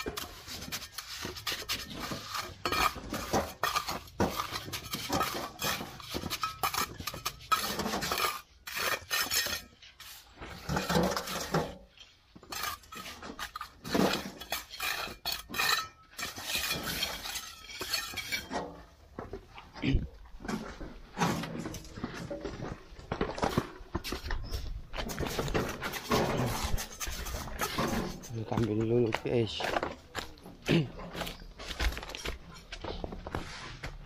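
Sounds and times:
trowel scraping and tapping mortar: 0.0s - 19.0s, 23.2s - 30.4s.

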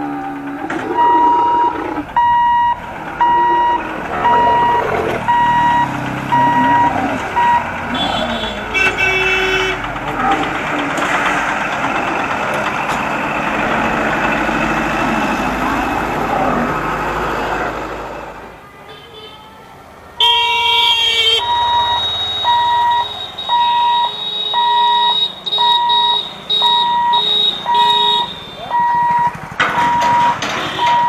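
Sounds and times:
truck engine: 0.0s - 18.6s, 21.0s - 31.0s
road traffic: 0.0s - 31.0s
level crossing buzzer beeping: 0.9s - 7.7s, 21.4s - 31.0s
horn sounding: 6.3s - 10.4s, 20.2s - 29.0s.

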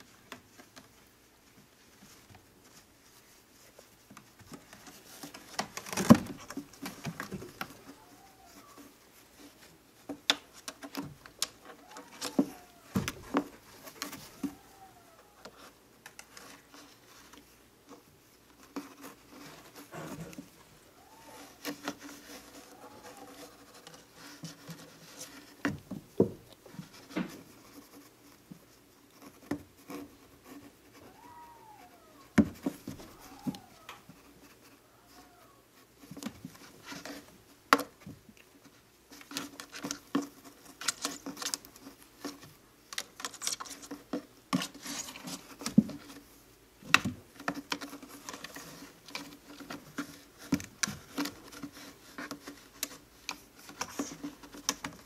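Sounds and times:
claws scratching on carpet: 0.2s - 25.7s, 26.5s - 38.0s.

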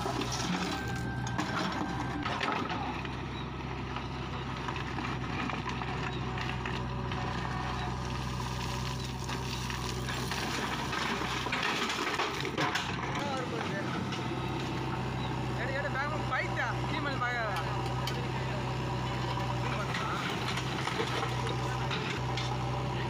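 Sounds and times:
bucket digging soil and stones: 0.0s - 3.1s, 4.6s - 13.1s
diesel engine running: 0.0s - 23.0s.

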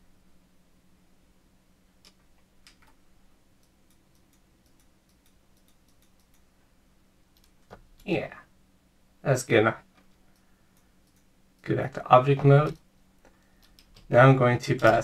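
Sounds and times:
low steady hum: 0.0s - 15.0s
faint computer mouse clicks: 3.6s - 6.5s, 12.6s - 14.1s.

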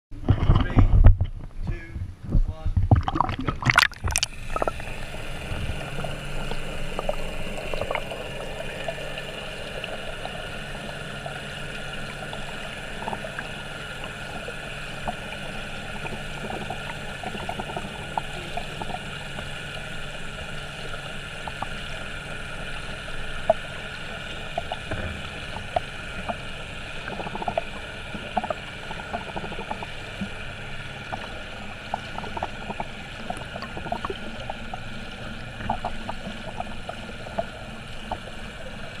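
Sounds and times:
muffled underwater hum and hiss: 3.2s - 39.0s.

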